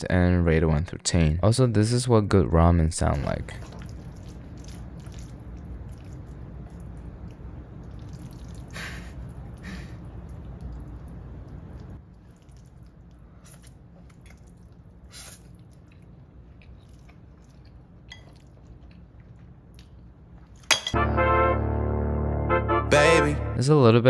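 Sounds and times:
noodles being eaten wetly: 0:03.6 - 0:20.6
loud music with brass: 0:21.0 - 0:23.6.

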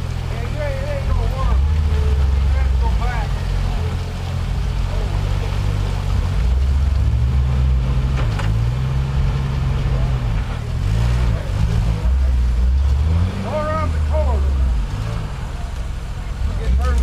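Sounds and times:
engine revving under load: 0:00.0 - 0:17.0.

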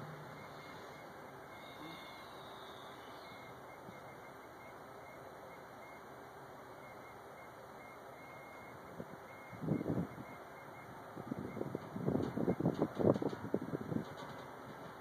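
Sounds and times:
faint high squeal: 0:00.0 - 0:06.0
train wheels on rail: 0:11.8 - 0:15.0.

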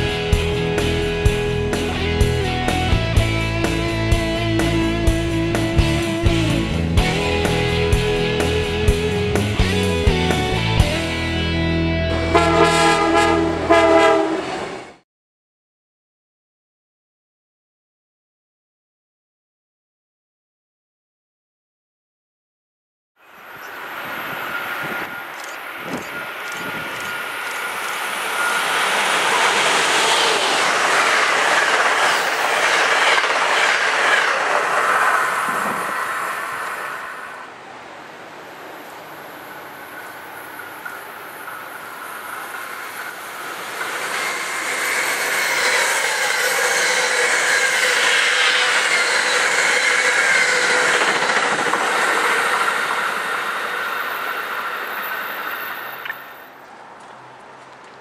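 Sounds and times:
train wheels clattering on rails: 0:24.0 - 0:36.9, 0:39.9 - 0:56.5.

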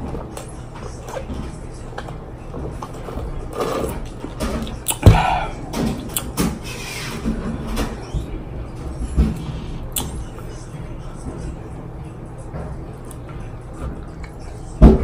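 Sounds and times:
mouth sounds: 0:04.9 - 0:06.2
sharp thump: 0:05.0 - 0:05.8.

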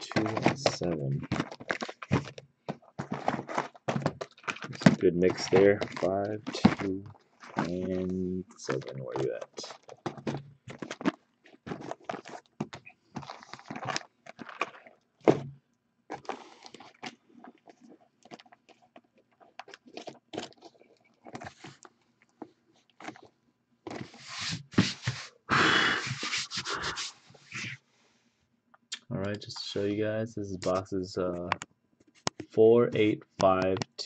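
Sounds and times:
plastic wrap crinkling: 0:00.0 - 0:15.4
cardboard boxes scraping: 0:03.0 - 0:04.8, 0:23.9 - 0:25.3, 0:25.9 - 0:27.8.

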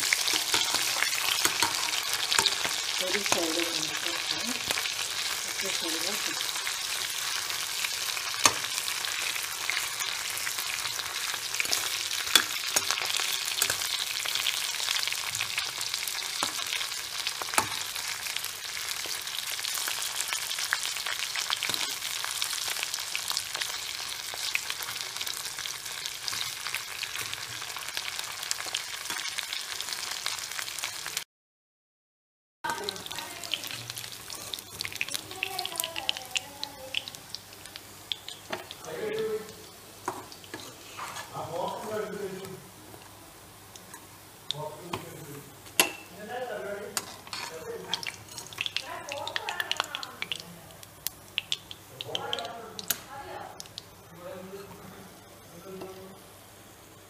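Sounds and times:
chicken sizzling in hot oil: 0:00.0 - 0:31.2, 0:32.7 - 0:57.0
sharp clicks of frying oil: 0:08.4 - 0:09.4, 0:11.6 - 0:27.8, 0:43.7 - 0:46.1, 0:47.0 - 0:54.0.

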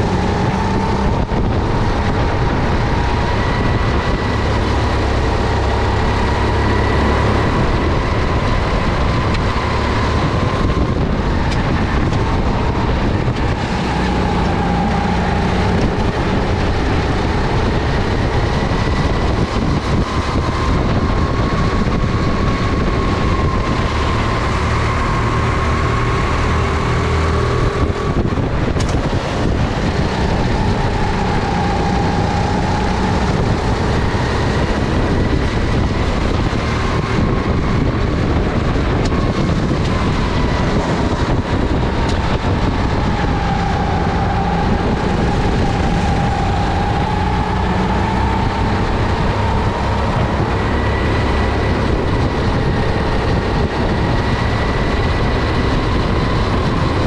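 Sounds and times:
kart engine running under load: 0:00.0 - 0:57.0.

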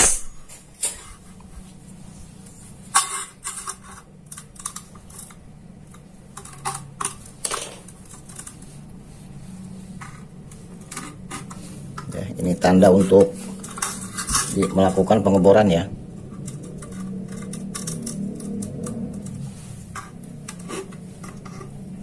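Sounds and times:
steel ruler clicking and scraping: 0:16.2 - 0:21.9.

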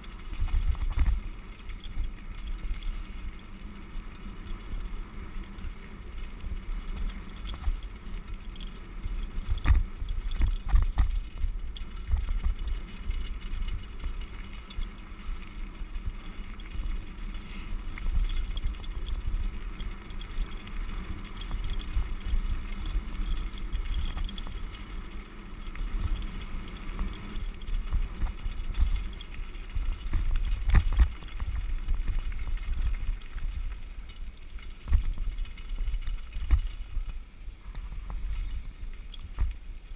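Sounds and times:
bike jolting over rough ground: 0:00.0 - 0:39.9
bike tyres rumbling on gravel: 0:00.0 - 0:39.9.

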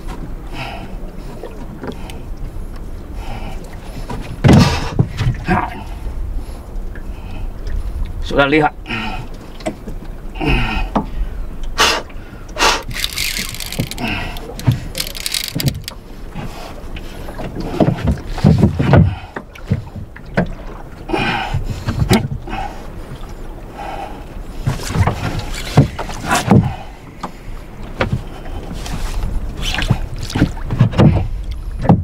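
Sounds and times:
water sloshing against boat hull: 0:09.2 - 0:32.0.

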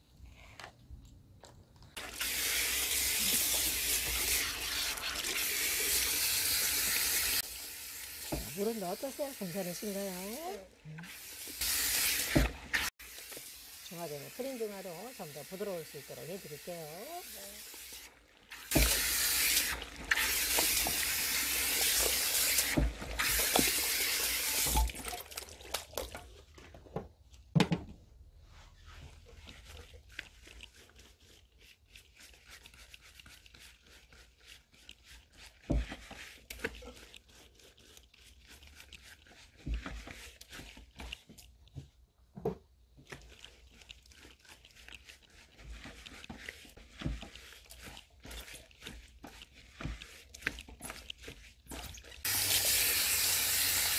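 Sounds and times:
hand sprayer hissing water: 0:02.0 - 0:24.9, 0:52.2 - 0:53.9
hands squishing wet hair: 0:08.5 - 0:26.7, 0:28.6 - 0:41.7, 0:42.9 - 0:52.4.

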